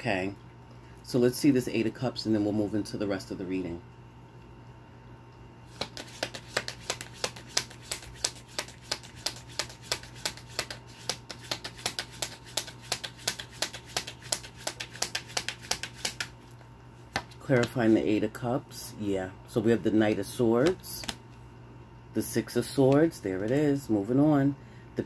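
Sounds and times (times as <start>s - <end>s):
cards being shuffled: 5.7s - 18.0s, 20.1s - 21.3s.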